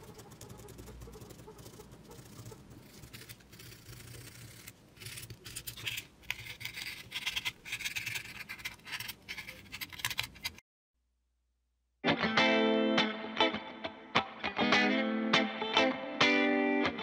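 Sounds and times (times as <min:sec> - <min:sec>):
knife cutting foam board: 0:02.2 - 0:10.6.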